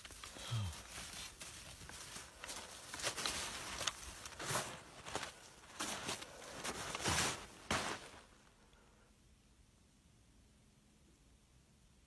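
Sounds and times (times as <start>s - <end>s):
footsteps crunching in snow: 0.0s - 8.5s.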